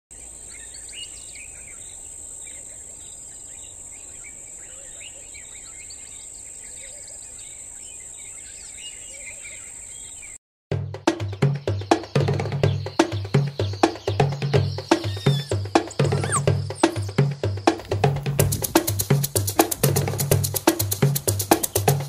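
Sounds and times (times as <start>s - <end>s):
birds chirping and calling: 0.2s - 10.4s, 11.6s - 19.0s.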